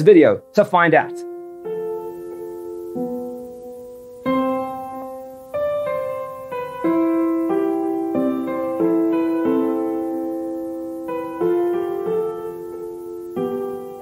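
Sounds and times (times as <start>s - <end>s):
gentle piano chords: 0.0s - 14.0s.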